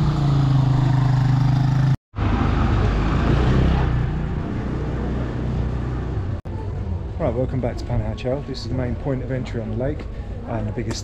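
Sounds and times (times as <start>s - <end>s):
vehicle engine humming: 0.0s - 7.8s
street traffic rumble: 0.0s - 11.0s.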